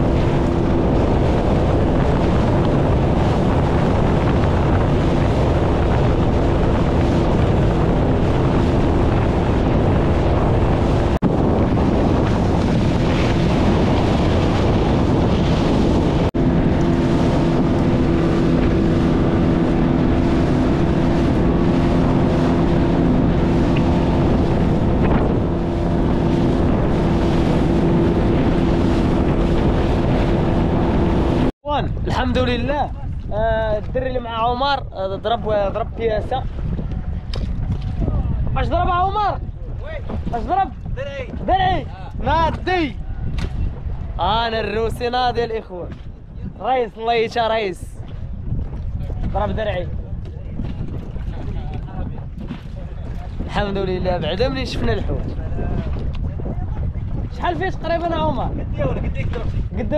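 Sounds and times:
motorboat engine running: 0:00.0 - 0:32.5, 0:35.0 - 0:44.2
water noise from hull: 0:00.0 - 0:59.9
wind buffeting microphone: 0:00.0 - 0:59.9.

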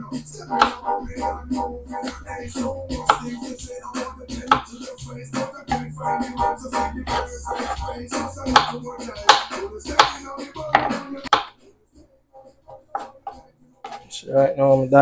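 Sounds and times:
background music: 0:00.0 - 0:15.0
knife cutting on cutting board: 0:04.4 - 0:04.8, 0:07.1 - 0:11.5, 0:12.9 - 0:14.1.

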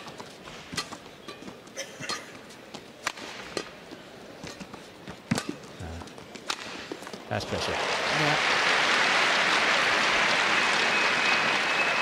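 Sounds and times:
racket striking shuttlecock: 0:03.0 - 0:03.8.

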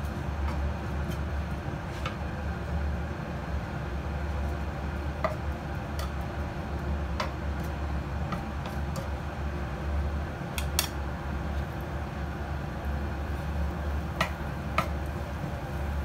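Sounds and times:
wooden spatula clicking in pan: 0:07.2 - 0:07.4, 0:14.2 - 0:15.0.

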